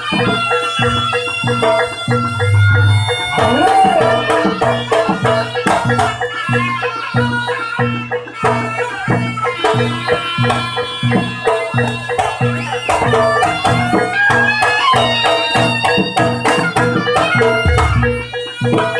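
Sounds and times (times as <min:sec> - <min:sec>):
drums and gong percussion: 0:00.0 - 0:18.9
reedy shawm melody: 0:00.8 - 0:05.5.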